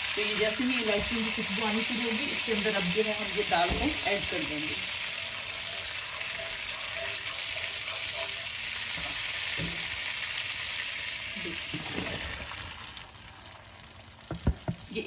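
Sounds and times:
butter sizzling in a pan: 0.0 - 15.0
spatula stirring in a pan: 3.4 - 11.1.

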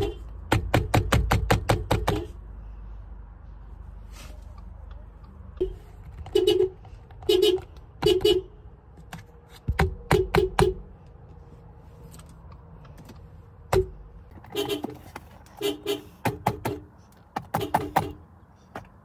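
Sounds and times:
car horn short honks: 0.0 - 0.3, 5.6 - 8.5, 14.4 - 16.2.

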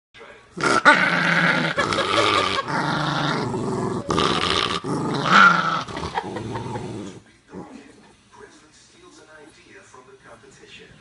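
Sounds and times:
dog growling: 0.6 - 8.2.

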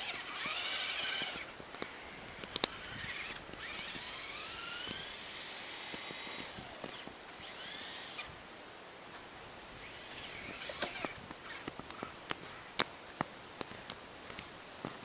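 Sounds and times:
electric motor whining: 0.0 - 8.4, 9.8 - 11.8.

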